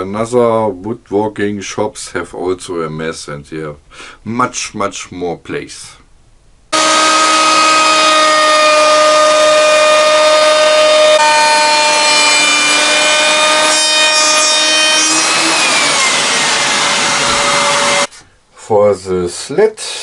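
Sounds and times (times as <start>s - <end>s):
router bit rasping wood: 6.8s - 18.1s
router high-speed whine: 6.8s - 18.1s.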